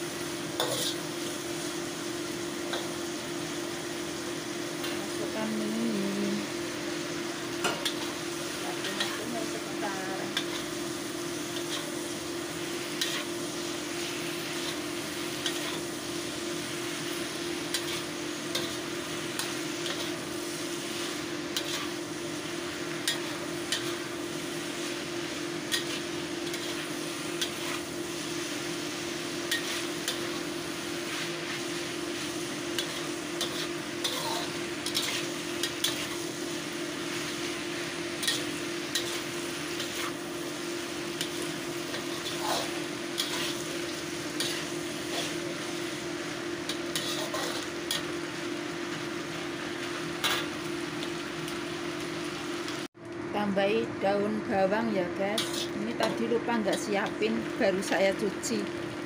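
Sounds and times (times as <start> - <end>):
noodles sizzling in a wok: 0.0 - 59.0
spatula scraping a wok: 0.5 - 1.5, 7.6 - 48.3, 48.9 - 50.7, 55.4 - 56.9.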